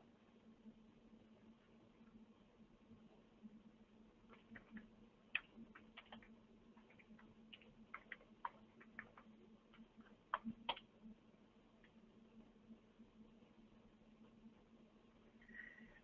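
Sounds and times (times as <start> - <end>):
faint low hum: 0.0 - 16.0
computer keyboard typing: 4.3 - 10.9.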